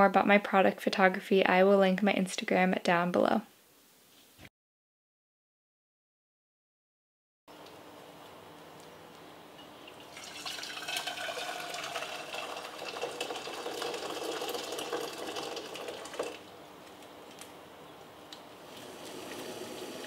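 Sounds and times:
water pouring into a metal saucepan: 0:09.9 - 0:16.4, 0:18.8 - 0:20.0.

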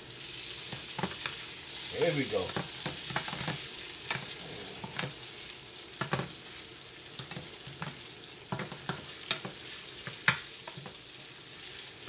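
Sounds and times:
rice sizzling in a frying pan: 0:00.0 - 0:12.0
wooden spatula scraping a pan: 0:00.9 - 0:06.6.

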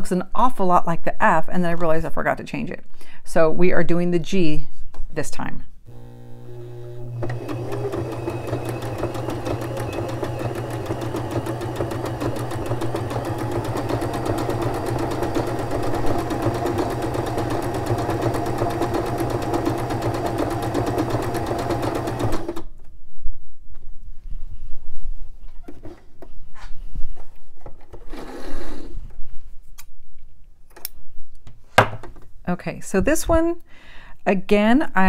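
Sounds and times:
sewing machine sewing: 0:05.9 - 0:22.7.

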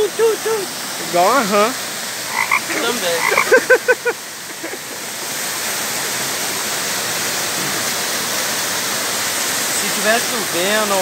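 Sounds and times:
waterfall rushing over rocks: 0:00.0 - 0:11.0
short voiced calls: 0:02.3 - 0:03.6.

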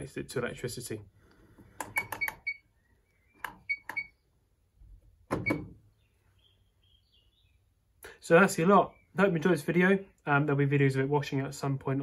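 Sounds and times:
control panel beeps: 0:01.8 - 0:02.7, 0:03.4 - 0:04.2.

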